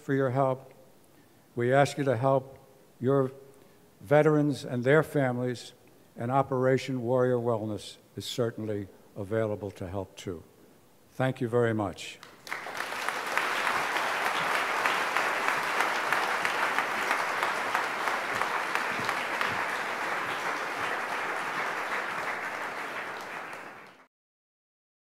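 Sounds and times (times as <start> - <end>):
audience applauding: 12.2 - 24.1.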